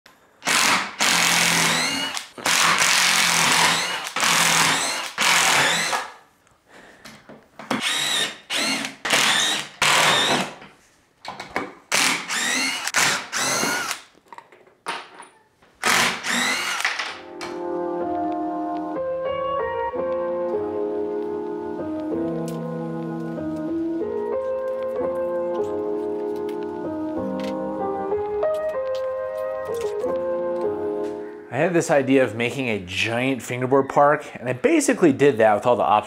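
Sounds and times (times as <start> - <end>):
cordless driver whining: 0.4 - 6.1, 7.7 - 10.6, 11.9 - 14.1, 15.8 - 17.1.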